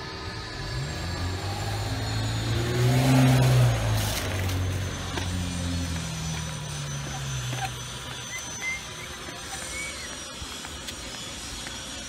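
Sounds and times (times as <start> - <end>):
car driving past: 0.5 - 7.6.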